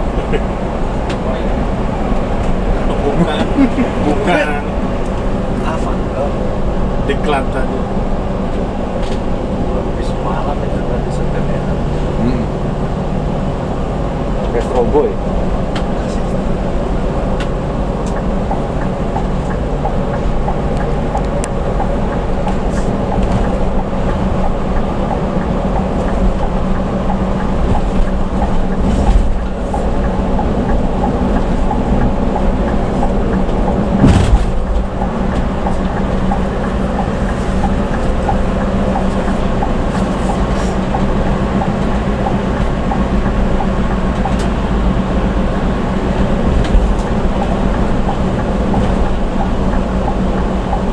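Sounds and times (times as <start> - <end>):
bus engine drone: 0.0 - 50.9
tyre and road rumble: 0.0 - 50.9
thump: 34.0 - 34.6.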